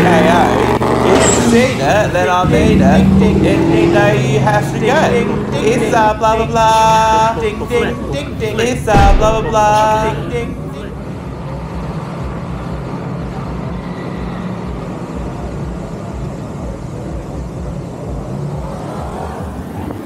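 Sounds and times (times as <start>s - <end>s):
car engine idling: 0.0s - 12.8s.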